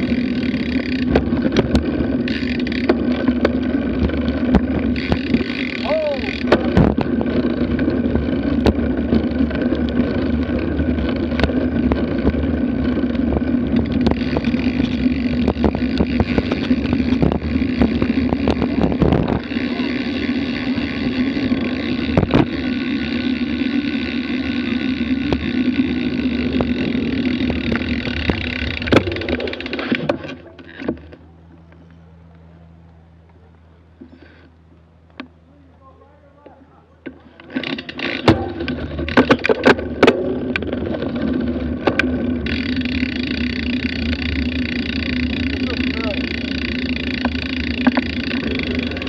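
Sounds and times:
bicycle tyre and drivetrain noise: 0.0 - 49.0
wind rushing over microphone: 13.3 - 19.7.

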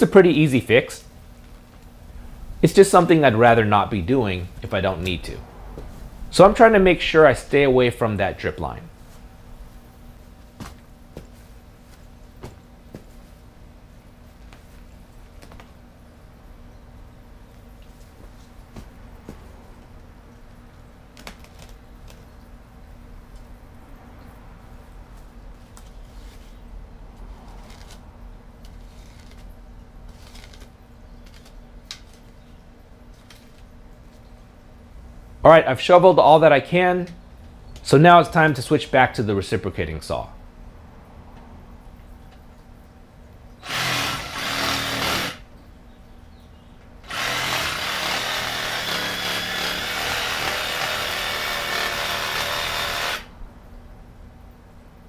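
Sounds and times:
reciprocating saw cutting roots: 43.6 - 45.5, 47.0 - 53.3.

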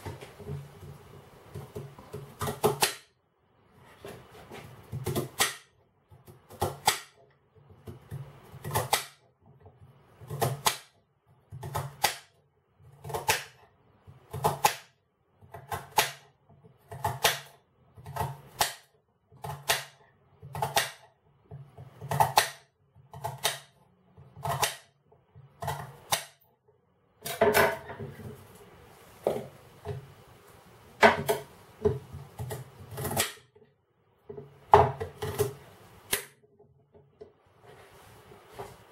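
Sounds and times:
knife chopping on glass board: 1.5 - 3.1, 4.9 - 9.2, 10.2 - 12.3, 12.9 - 14.9, 15.5 - 26.4, 31.0 - 33.5, 34.7 - 36.4.

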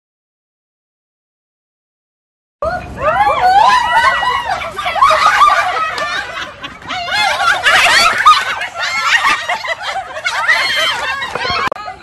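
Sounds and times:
group of people laughing: 3.3 - 12.0.

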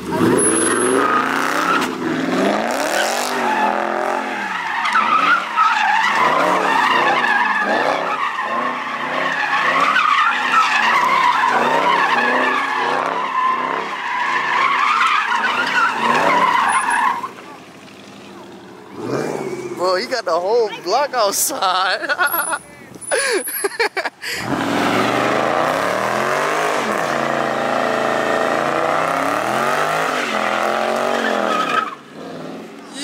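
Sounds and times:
car engine revving: 0.0 - 19.9, 24.4 - 32.7
tyre squeal: 0.1 - 2.0, 2.8 - 18.5.

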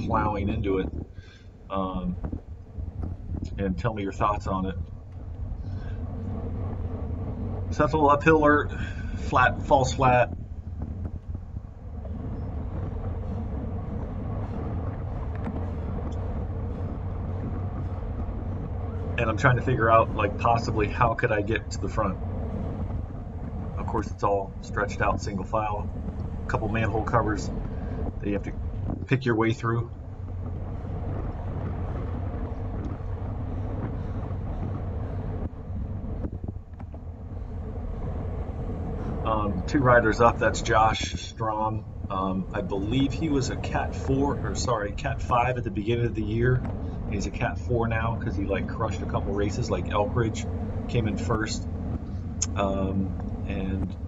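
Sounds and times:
bicycle tyre and road noise: 0.0 - 54.0
wind rushing over microphone: 0.0 - 54.0.

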